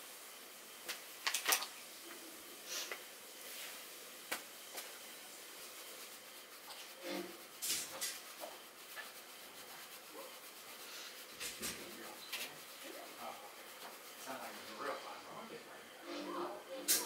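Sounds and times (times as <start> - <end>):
small items clicking on table: 0.9 - 1.7.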